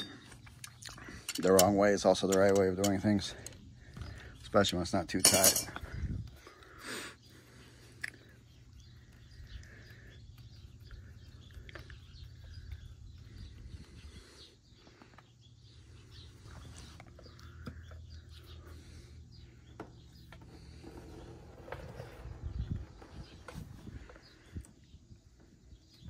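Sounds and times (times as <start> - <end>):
clicks of metal parts: 0.0 - 3.6
faint bird chirps: 0.0 - 26.0.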